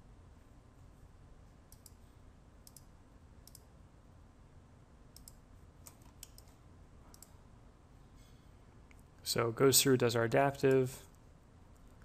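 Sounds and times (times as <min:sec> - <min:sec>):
computer mouse clicks: 0:01.7 - 0:02.0, 0:02.6 - 0:03.7, 0:05.1 - 0:07.4.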